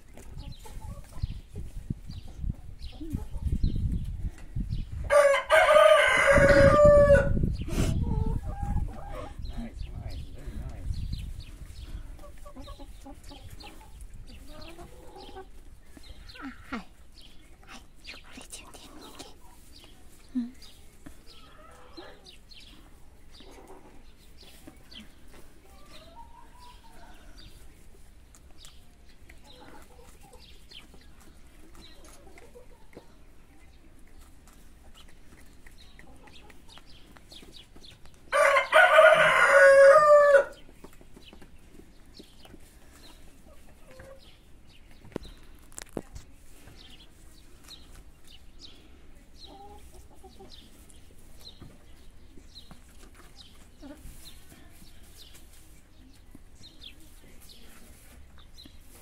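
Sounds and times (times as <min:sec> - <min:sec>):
hens clucking: 0:00.0 - 0:59.0
rooster crowing: 0:05.1 - 0:07.4, 0:38.3 - 0:40.6.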